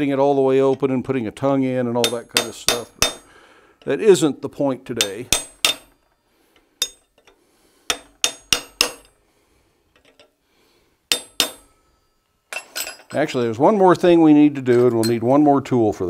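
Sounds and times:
hammer striking metal chisel: 2.0s - 3.9s, 4.9s - 6.2s, 6.8s - 7.3s, 7.9s - 9.2s, 11.1s - 13.0s.

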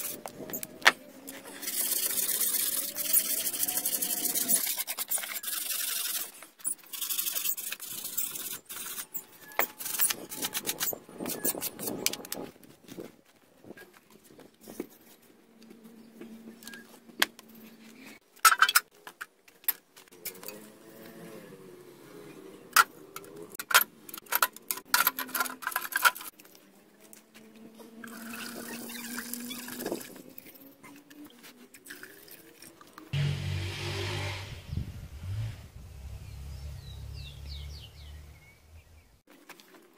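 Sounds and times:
metal spikes and can clinking: 1.3s - 12.4s, 23.2s - 26.4s.

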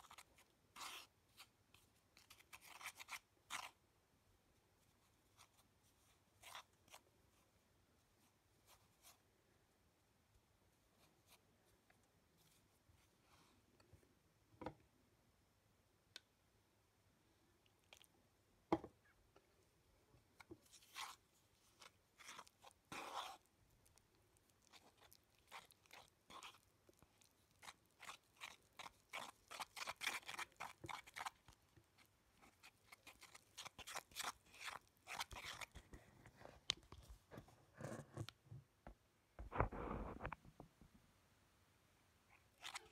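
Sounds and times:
spatula scraping powder in bowl: 0.0s - 1.2s, 2.2s - 3.8s, 21.8s - 23.5s, 24.6s - 31.5s, 32.4s - 35.9s.

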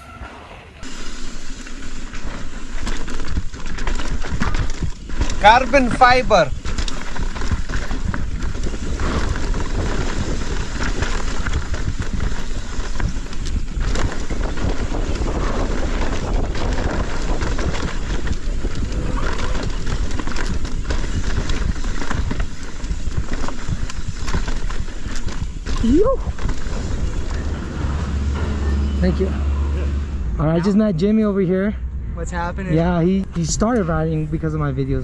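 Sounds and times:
bike clattering over bumps: 0.8s - 30.4s
wind rush on microphone: 3.0s - 28.9s.

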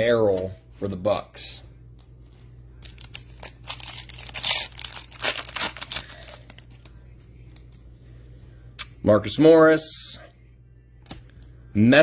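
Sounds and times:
foil wrapper tearing and crinkling: 2.8s - 6.7s.

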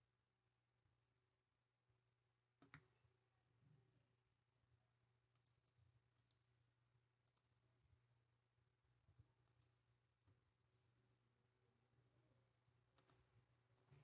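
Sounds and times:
computer mouse and keyboard clicks: 2.6s - 2.9s, 5.3s - 6.4s, 12.9s - 14.0s.

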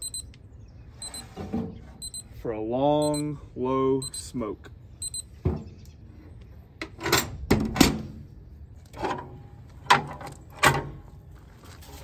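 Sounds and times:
sharp metal knocks and clunks: 6.8s - 8.2s, 8.9s - 11.1s.

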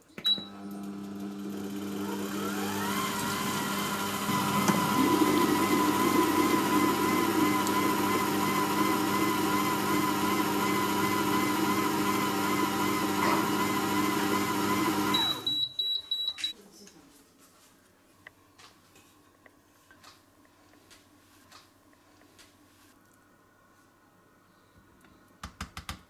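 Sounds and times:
food processor motor whining: 0.5s - 15.5s.

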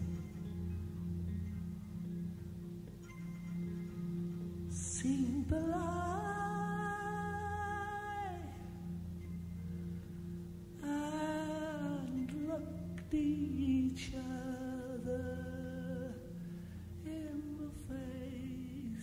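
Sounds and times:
wordless female singing: 4.7s - 9.0s, 10.8s - 16.4s, 17.0s - 19.0s.

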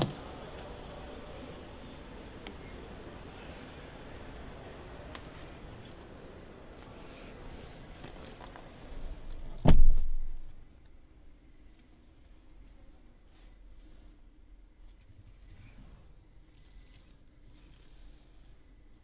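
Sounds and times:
handling and rustling: 0.0s - 19.0s
muffled surrounding noise: 0.0s - 19.0s
car door shutting with heavy thud: 9.6s - 10.4s.

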